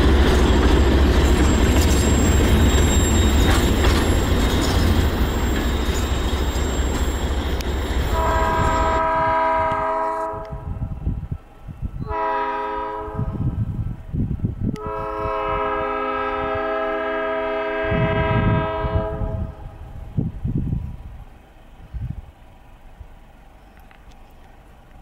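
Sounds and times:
freight train rumbling past: 0.0s - 25.0s
locomotive air horn blasts: 8.0s - 10.7s, 12.0s - 13.6s, 14.8s - 19.6s.

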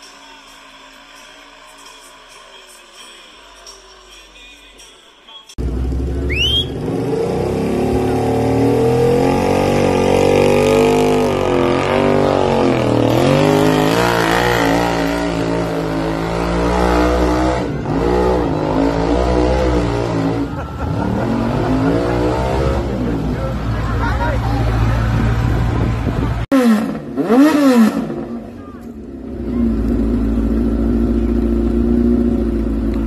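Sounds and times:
tractor engine revving hard: 5.6s - 28.5s.

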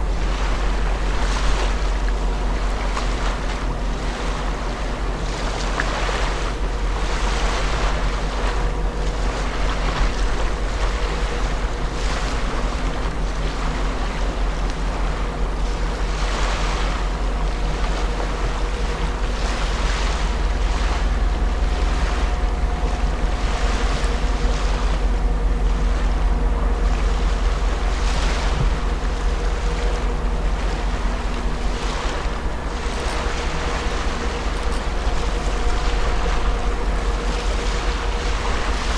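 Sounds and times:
ship machinery low hum: 0.0s - 38.9s
water washing in swells: 0.0s - 38.9s.

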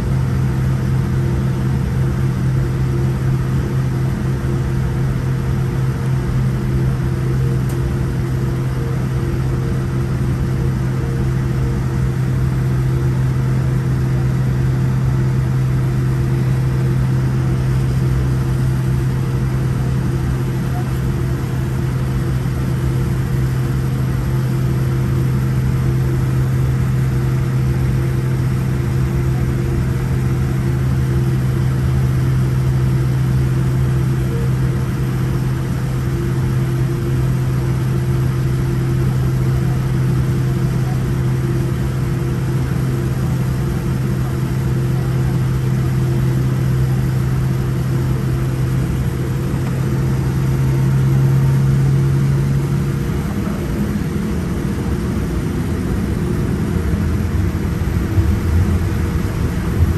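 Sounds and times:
airplane cabin drone: 0.0s - 59.9s.

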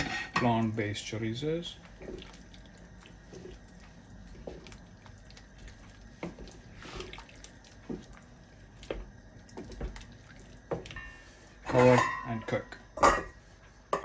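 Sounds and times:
spoon stirring stew: 0.5s - 12.4s
liquid sloshing: 1.5s - 11.9s.

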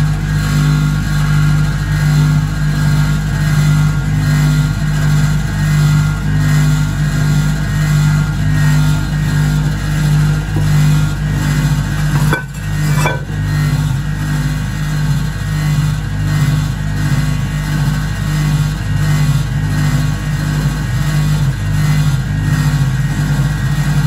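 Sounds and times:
spin dryer motor humming: 5.2s - 24.0s.

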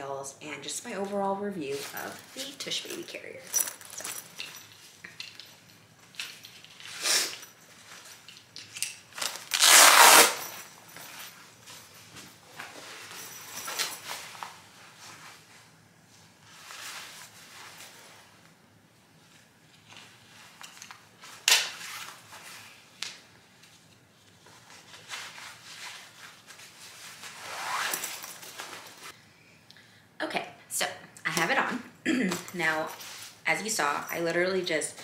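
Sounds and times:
fabric strap rustling: 1.0s - 15.6s, 19.3s - 29.2s
velcro tearing open: 9.2s - 10.5s.

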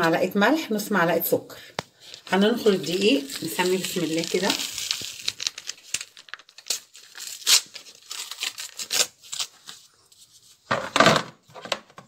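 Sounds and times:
paper bag crinkling: 2.0s - 9.9s.

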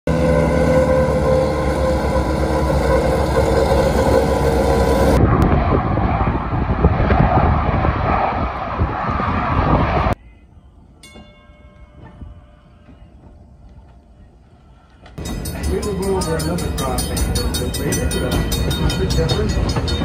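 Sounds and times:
diesel locomotive engine rumbling: 0.0s - 20.0s
fighter jets flying past: 0.1s - 10.2s.

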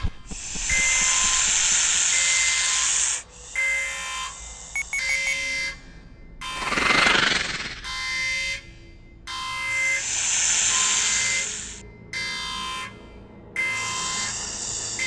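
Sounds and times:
loud hiss: 0.0s - 3.4s
pulsing alarm tone: 0.0s - 15.0s
short high beeps: 4.8s - 5.6s.

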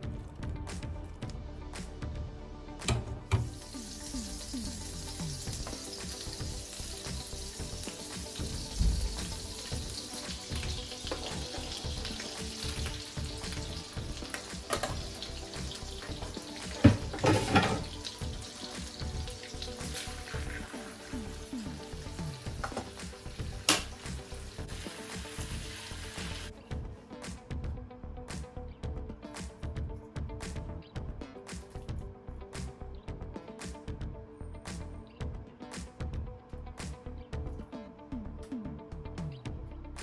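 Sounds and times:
butter sizzling in a wok: 3.4s - 26.5s.

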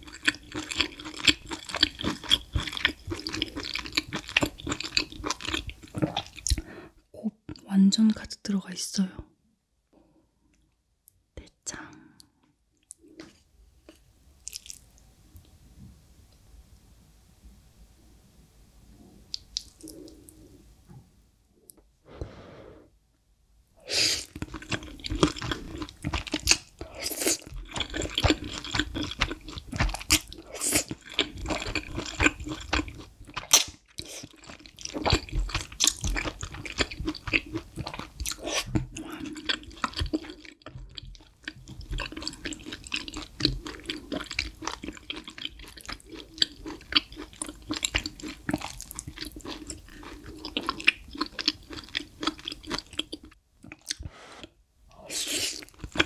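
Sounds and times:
noodles slurped and chewed: 0.0s - 6.7s, 24.0s - 56.0s.

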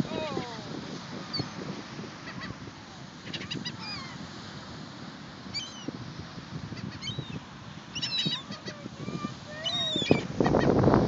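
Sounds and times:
gulls calling: 3.2s - 4.2s, 6.8s - 10.8s.

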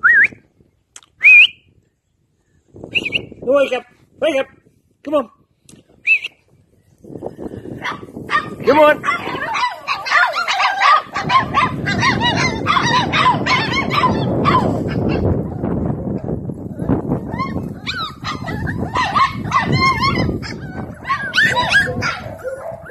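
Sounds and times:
puppies yipping and whimpering: 9.0s - 15.3s, 17.2s - 22.9s.

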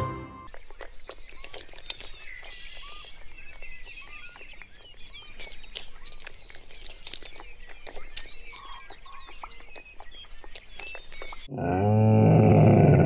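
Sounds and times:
fish splashing and slurping: 0.5s - 3.5s, 4.7s - 11.5s.

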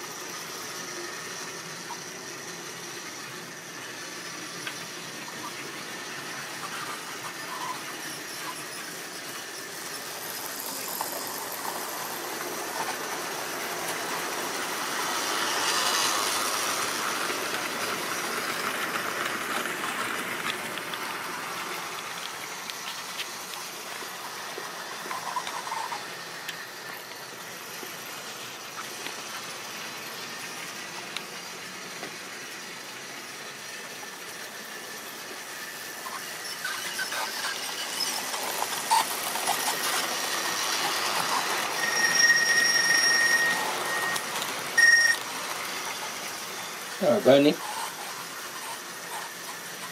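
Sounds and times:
model trains rattling whirr: 0.0s - 49.9s
high wheel squeal: 1.6s - 17.0s, 23.9s - 26.7s, 35.4s - 45.2s.

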